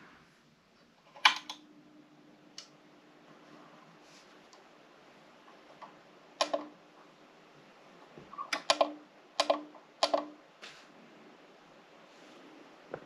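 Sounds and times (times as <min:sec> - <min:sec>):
sharp clicks and taps: 0:05.8 - 0:06.7, 0:08.5 - 0:10.4.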